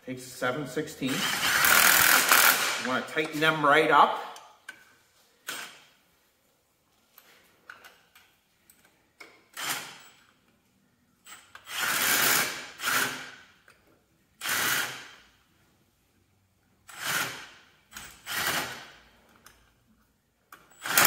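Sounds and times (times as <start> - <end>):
power tool driving bolts: 1.0 - 3.4, 5.4 - 5.9, 9.2 - 10.3, 11.3 - 13.6, 14.4 - 15.3, 16.8 - 19.1, 20.5 - 21.0.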